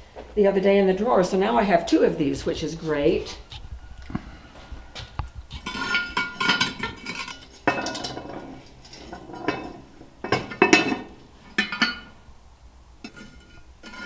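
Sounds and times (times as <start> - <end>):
metal lid clanking and scraping: 5.5 - 12.2, 13.0 - 14.0.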